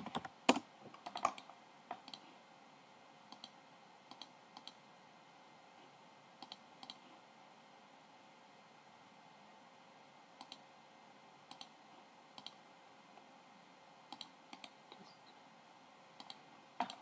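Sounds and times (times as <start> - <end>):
keyboard typing: 0.0 - 2.2, 16.2 - 17.0
faint steady hiss: 0.0 - 17.0
mouse clicks: 0.1 - 2.2, 3.3 - 4.8, 6.4 - 7.0, 10.4 - 10.6, 11.5 - 11.7, 12.4 - 12.6, 14.1 - 15.1, 16.2 - 17.0.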